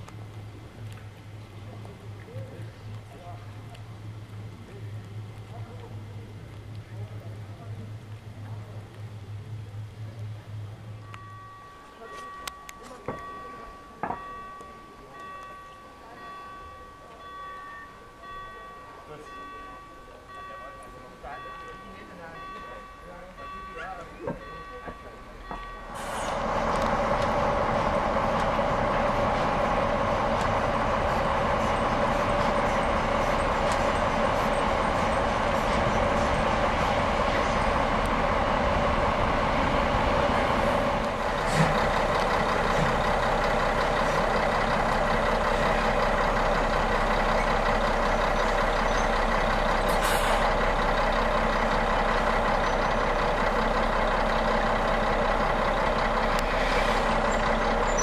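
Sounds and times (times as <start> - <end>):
steam locomotive hissing steam: 25.8 - 58.0.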